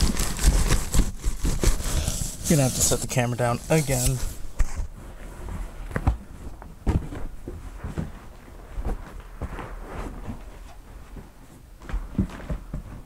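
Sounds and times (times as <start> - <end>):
packaging rustling: 0.0 - 5.0.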